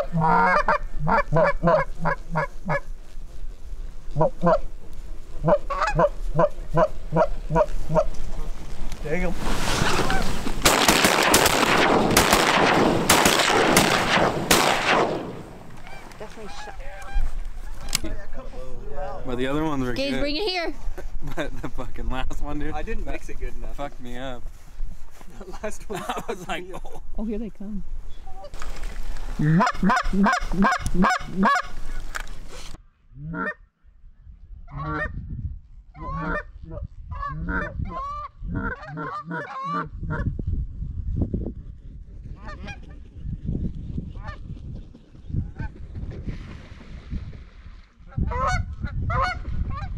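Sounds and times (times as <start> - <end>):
geese honking: 0.0 - 2.8, 5.4 - 8.1, 15.1 - 18.0, 29.4 - 31.8, 37.1 - 40.2
shotgun fire volley: 10.6 - 15.8.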